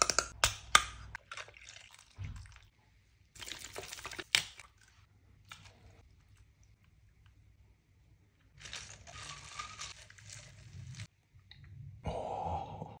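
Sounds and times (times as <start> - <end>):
ice cubes rattling in plastic cup: 8.6 - 11.1.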